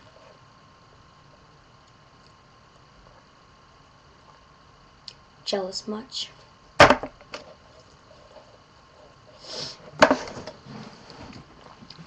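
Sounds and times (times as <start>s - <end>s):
breathy hiss: 9.2s - 10.0s.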